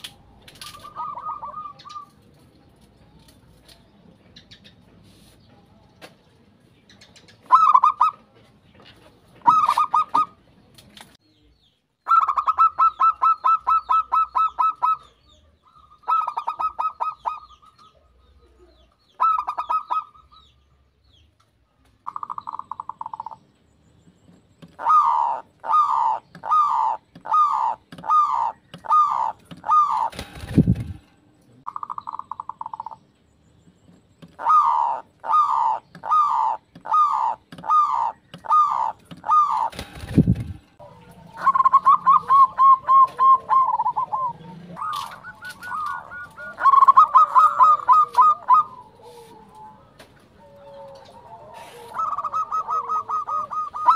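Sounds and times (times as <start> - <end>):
doves cooing in trills: 0.0 - 2.3, 7.4 - 8.3, 9.4 - 10.4, 12.1 - 15.2, 15.8 - 17.8, 19.2 - 20.4, 24.6 - 31.0, 34.2 - 53.9.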